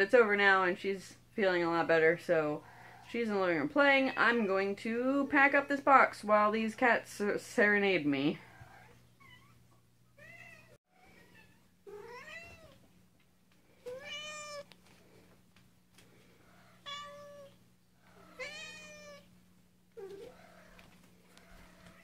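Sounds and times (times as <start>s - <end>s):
cats meowing: 8.5s - 12.9s, 13.8s - 14.7s, 16.4s - 19.3s.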